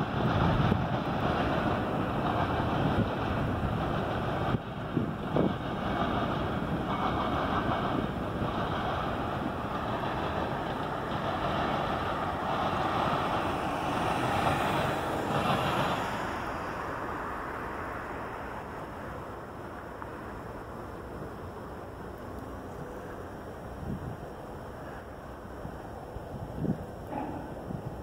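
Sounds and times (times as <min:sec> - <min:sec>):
wind buffeting microphone: 0:00.0 - 0:17.2, 0:23.7 - 0:24.4, 0:25.6 - 0:28.0
cars driving past: 0:11.2 - 0:20.4.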